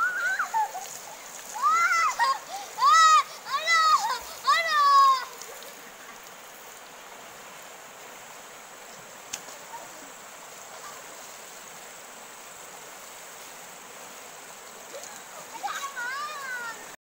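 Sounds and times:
river water rushing: 0.0 - 17.0.

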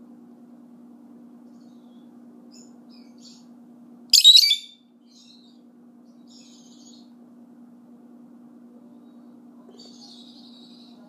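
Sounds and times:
loud high-pitched bird call: 4.1 - 5.6
lovebirds chirping: 4.2 - 7.2.

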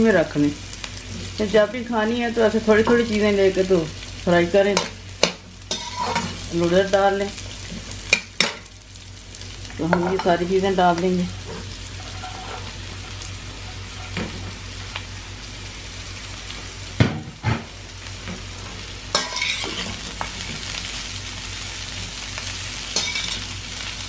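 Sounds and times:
vegetables sizzling in oil: 0.0 - 24.0
metal spatula scraping wok: 4.8 - 6.4, 11.4 - 14.4, 19.1 - 20.1, 23.0 - 23.5.

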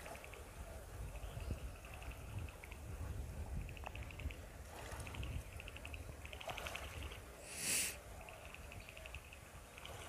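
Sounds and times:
loud hiss: 7.5 - 8.0.

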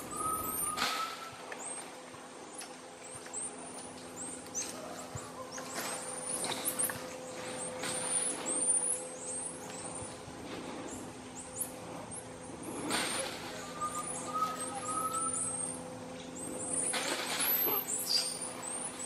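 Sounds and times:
thin steady whistle: 0.0 - 1.6, 13.4 - 15.9
monkeys chirping: 10.9 - 19.0.

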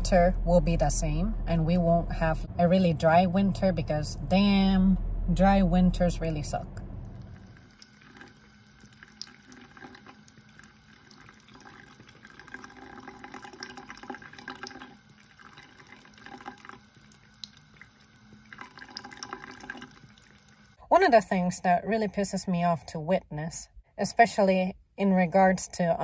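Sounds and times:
faucet running into sink: 7.0 - 20.8
cat drinking with splashy clicks: 7.1 - 20.6.

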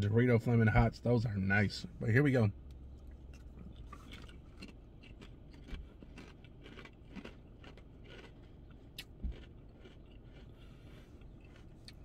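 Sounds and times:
person chewing potato chip: 3.1 - 12.0.

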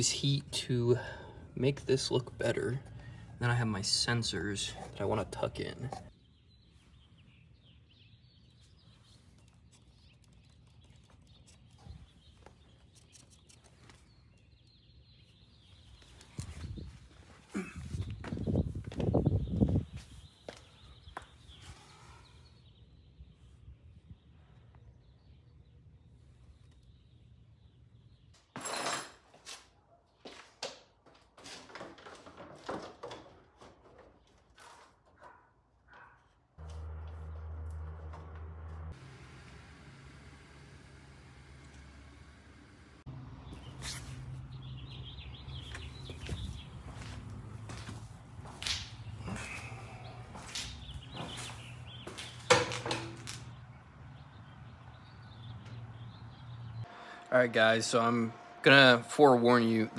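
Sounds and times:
car parts knocking and clattering: 30.7 - 34.5, 52.1 - 53.6.

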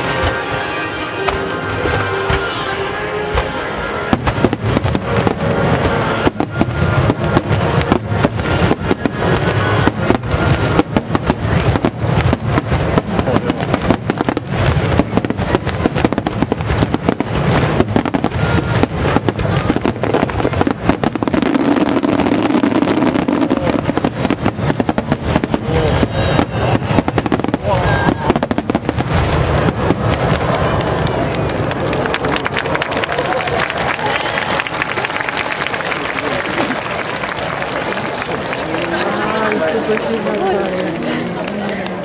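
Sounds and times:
music: 0.0 - 10.7
fireworks bangs and crackles: 0.0 - 42.0.

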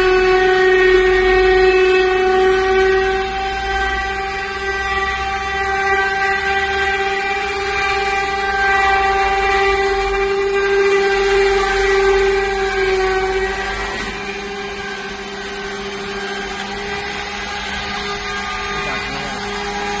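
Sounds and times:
edge banding machine motor whine: 0.0 - 20.0.

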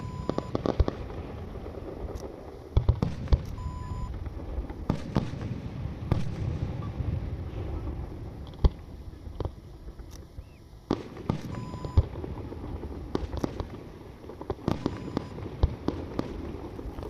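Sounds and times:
short electronic beep: 0.0 - 0.5, 3.6 - 4.2, 11.5 - 12.0, 14.9 - 15.3
firework bangs: 0.0 - 10.0, 10.8 - 17.0
low rumble: 0.0 - 10.9.

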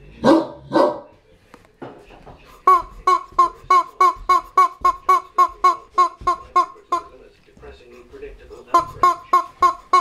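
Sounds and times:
rubber chicken toy squawking: 2.6 - 7.1, 8.7 - 10.0.

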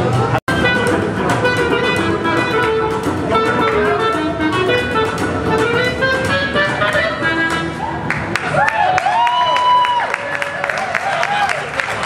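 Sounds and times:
swing jazz band: 0.0 - 8.3
clarinet melody: 0.1 - 8.2.

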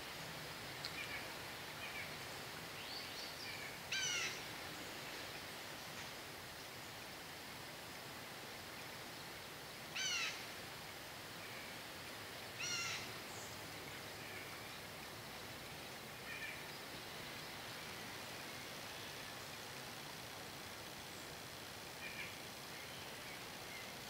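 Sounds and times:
steady background hiss: 0.0 - 24.0
bird calls: 2.8 - 4.4, 12.6 - 13.5.

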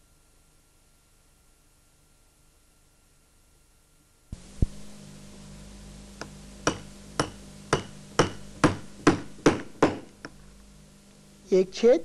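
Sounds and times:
faint low hum: 0.0 - 12.0
hammer striking metal punch: 6.6 - 10.4.

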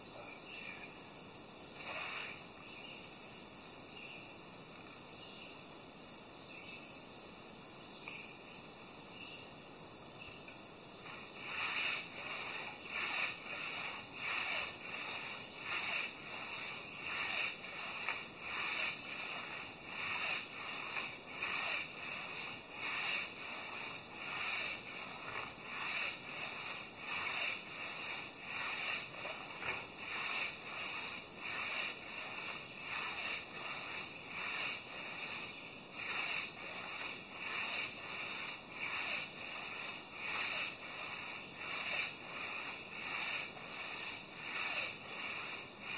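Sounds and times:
hand saw cutting log: 11.1 - 45.9.

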